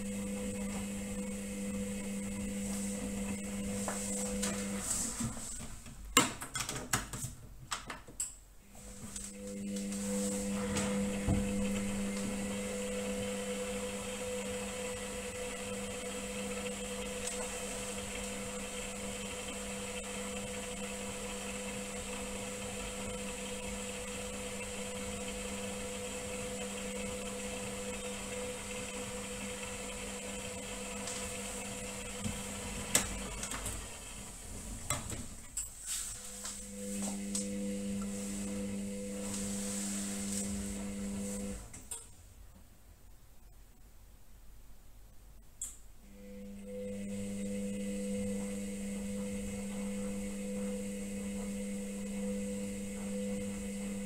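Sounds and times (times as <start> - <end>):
washing machine motor hum: 0.0 - 6.7, 8.6 - 42.6, 46.0 - 54.0
wet laundry swishing: 35.9 - 41.6.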